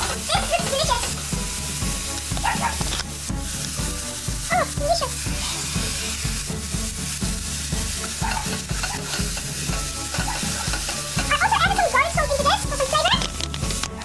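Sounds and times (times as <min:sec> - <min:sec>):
background music with low beat: 0:00.0 - 0:14.0
bacon and onions sizzling: 0:00.0 - 0:14.0
spoon stirring and scraping: 0:05.2 - 0:14.0.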